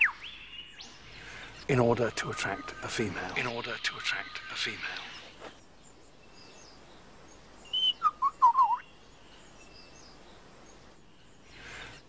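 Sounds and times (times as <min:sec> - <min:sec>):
lyrebird whistled call: 0:00.0 - 0:00.3, 0:07.7 - 0:08.9.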